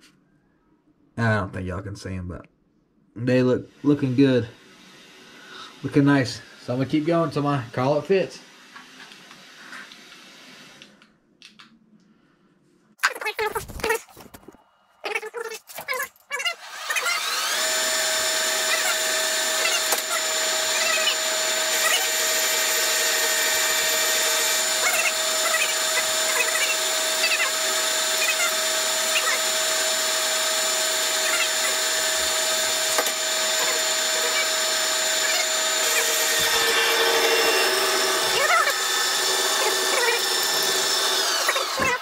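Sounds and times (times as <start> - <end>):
lathe motor whining: 16.6 - 42.0.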